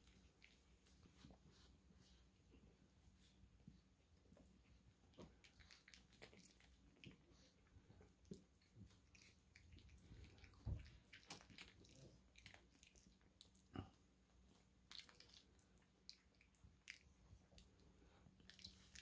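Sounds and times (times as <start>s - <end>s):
dogs wet mouth sounds: 4.7s - 13.8s, 14.6s - 19.0s.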